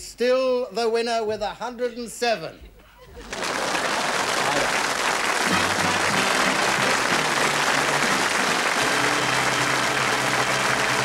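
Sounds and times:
audience applause: 3.2 - 11.0
music playing: 4.4 - 11.0.

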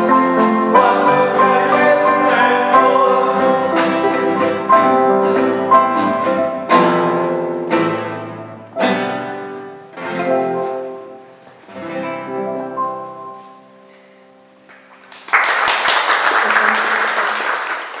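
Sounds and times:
classical guitar strumming chords: 0.0 - 14.7
applause: 14.7 - 18.0.

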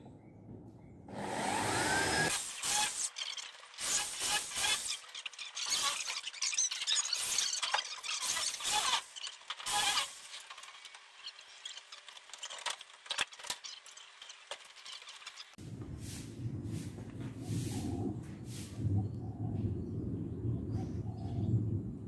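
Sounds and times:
electric drill driving screws: 1.1 - 11.0.

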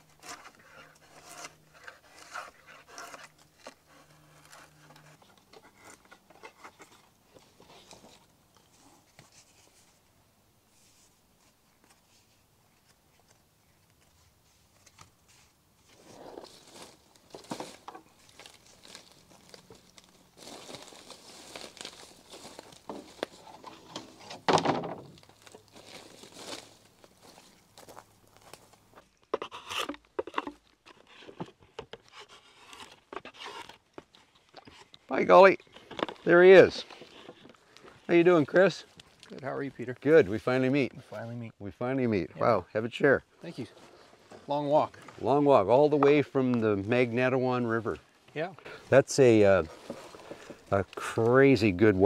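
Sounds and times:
drawknife scraping wood: 0.0 - 9.5, 29.3 - 35.0
wood shavings rustling: 15.9 - 28.8, 48.6 - 51.9.

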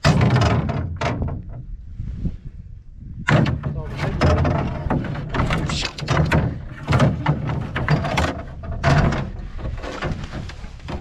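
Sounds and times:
knocks on aluminum canoe hull: 0.0 - 1.6, 3.2 - 10.2.

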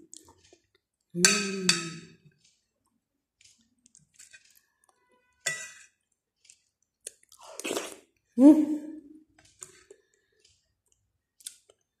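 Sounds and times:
metal spoon clinking on plate: 5.4 - 5.9
mouth noises of eating: 7.0 - 8.8.

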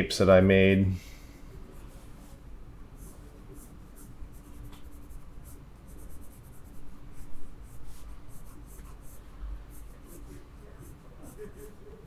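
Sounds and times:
pencil scratching on paper: 3.0 - 12.0.

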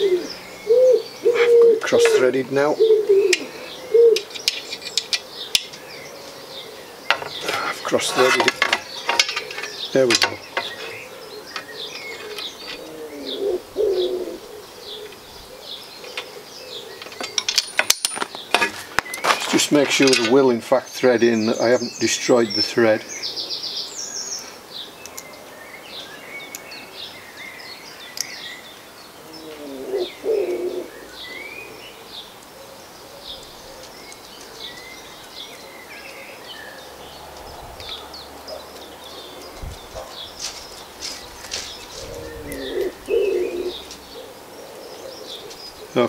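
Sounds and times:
dove cooing: 0.0 - 17.6, 29.2 - 37.0, 37.8 - 46.0
small birds chirping: 0.0 - 46.0.

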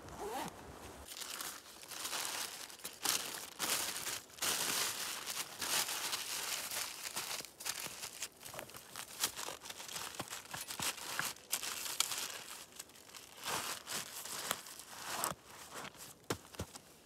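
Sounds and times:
plastic bag crinkling: 1.0 - 15.3.

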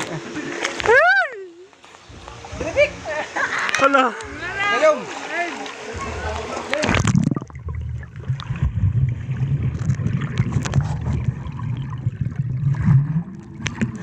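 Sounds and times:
muffled underwater churning: 1.8 - 14.0
small underwater clicks: 9.7 - 11.5, 13.3 - 14.0.

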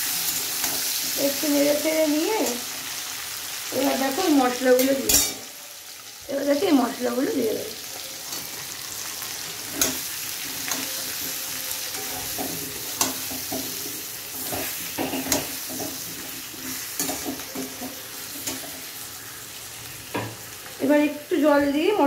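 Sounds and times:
vegetables sizzling in hot oil: 0.0 - 22.0
metal spatula scraping a pan: 4.8 - 5.5, 8.0 - 19.2.

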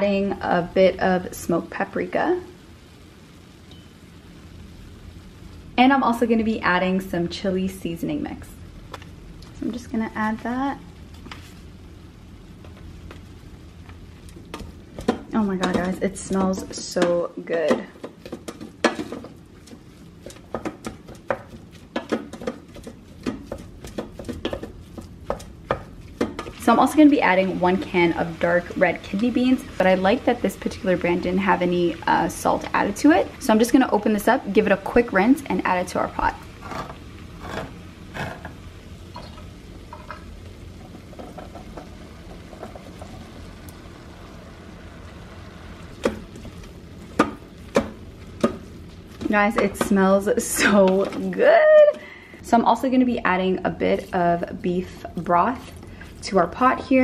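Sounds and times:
wooden spoon stirring and knocking: 12.6 - 38.6, 39.2 - 43.7, 45.7 - 52.0.

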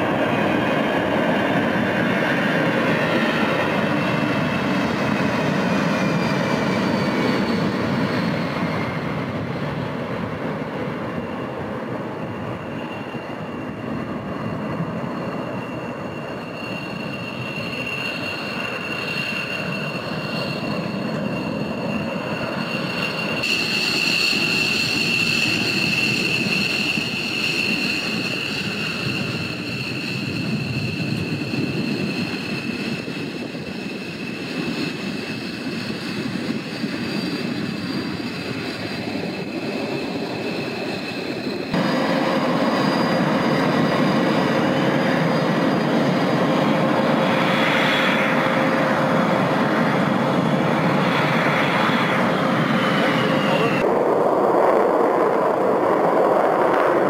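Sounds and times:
jet engines whining and rumbling: 0.0 - 57.0.

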